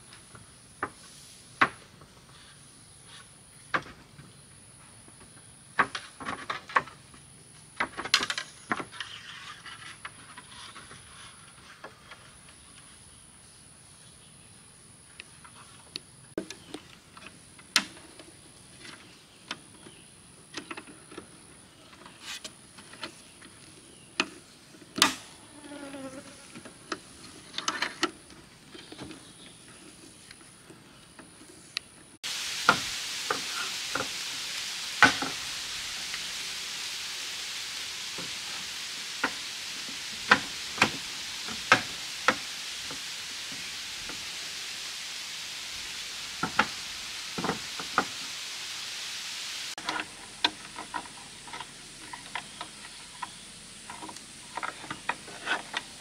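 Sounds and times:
steady hiss: 0.0 - 56.0
high insect buzz: 25.1 - 26.7, 32.2 - 50.7.

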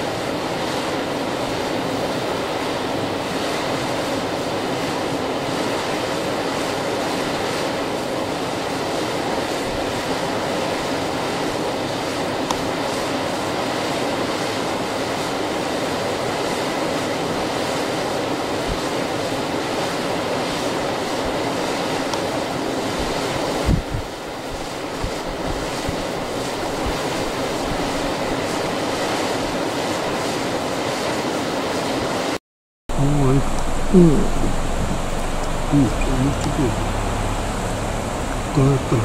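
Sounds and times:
river water rushing over shallows: 0.0 - 39.0.

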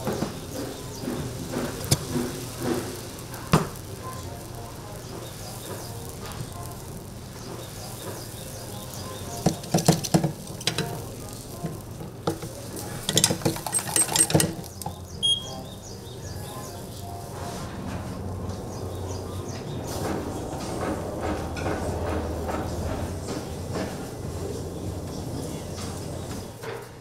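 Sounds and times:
batter sizzling in waffle iron: 0.0 - 17.7
metal clanks and knocks: 9.4 - 15.0.

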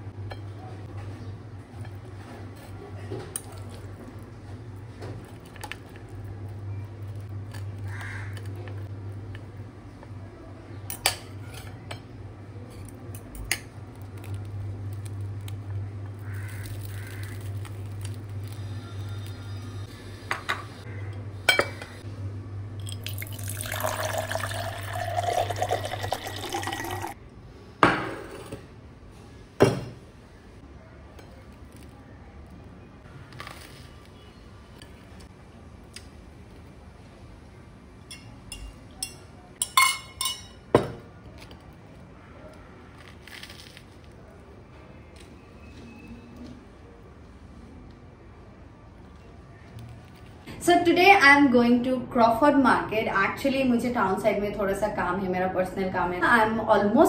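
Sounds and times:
dishes clinking: 21.5 - 21.9, 38.1 - 41.1
running tap water: 23.1 - 27.2
spoon and crockery clinking: 38.1 - 40.9.

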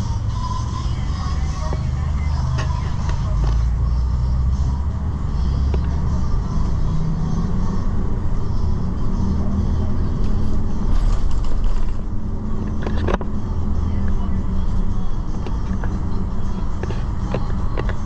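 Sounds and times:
bus engine and road rumble: 0.0 - 18.0.

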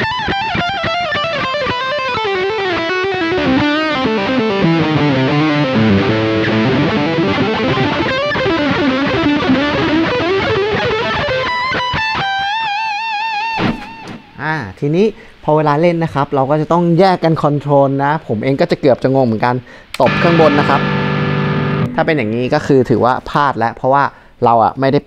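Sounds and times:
overdriven electric guitar lead: 0.0 - 14.4, 20.0 - 23.1.

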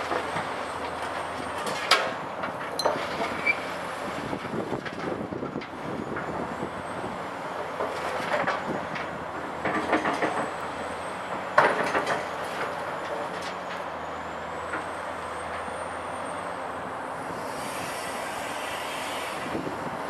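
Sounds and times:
excavator diesel engine: 0.0 - 20.0
rubble and steel clanking: 7.5 - 15.7.

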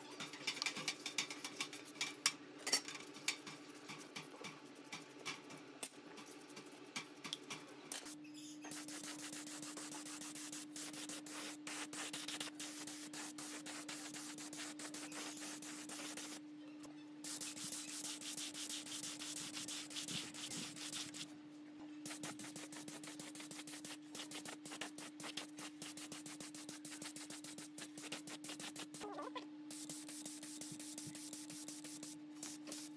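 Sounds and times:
spray paint hissing: 8.0 - 16.4, 17.2 - 21.3, 22.0 - 29.0, 29.7 - 32.9
brush scrubbing metal tray: 17.3 - 21.2.

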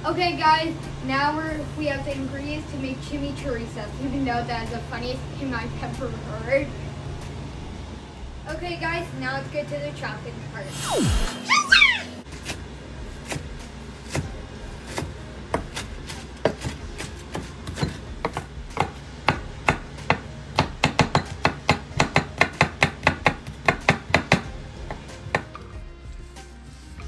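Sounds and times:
knife chopping herbs on wood: 12.3 - 25.7.

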